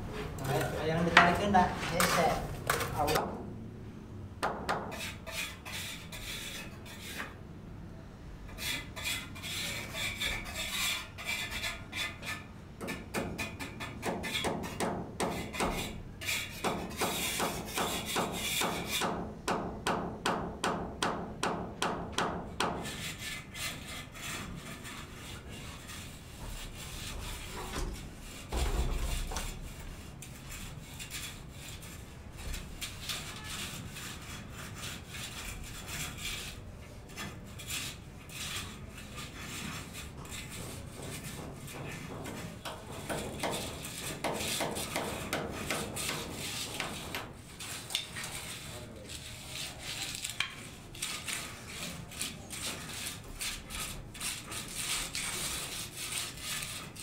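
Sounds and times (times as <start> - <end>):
rhythmic scraping strokes: 22.8 - 57.0.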